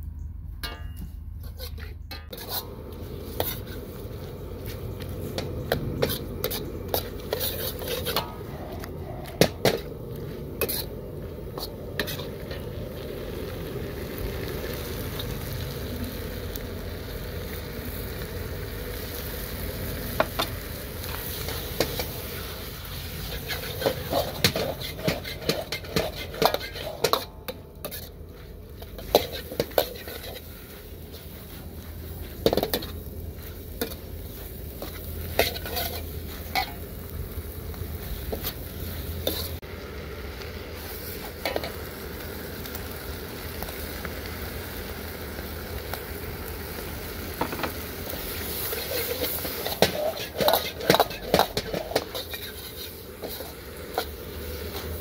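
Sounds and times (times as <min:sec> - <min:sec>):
ladle scraping a steel wok: 0:00.6 - 0:13.3, 0:18.8 - 0:37.1, 0:37.9 - 0:39.6, 0:47.7 - 0:55.0
food sizzling in a wok: 0:01.5 - 0:55.0.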